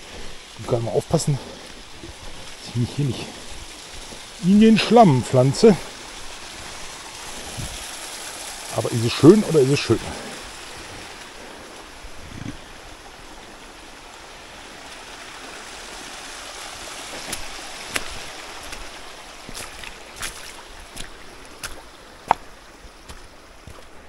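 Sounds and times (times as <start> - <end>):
footsteps on stony path: 0.0 - 4.4, 17.0 - 24.0
brook trickling over stones: 0.0 - 24.0.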